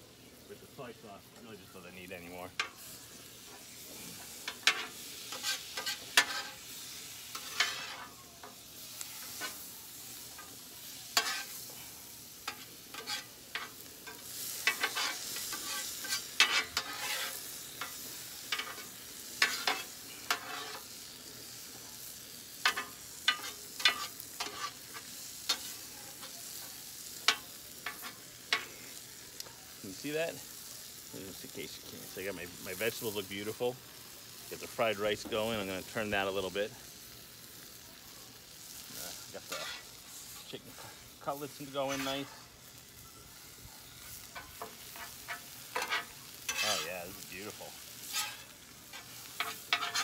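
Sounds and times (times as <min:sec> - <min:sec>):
food sizzling: 0:00.0 - 0:50.0
metal spatulas scraping griddle: 0:02.6 - 0:08.6, 0:10.4 - 0:21.1, 0:22.6 - 0:29.0, 0:39.3 - 0:42.5, 0:44.0 - 0:50.0.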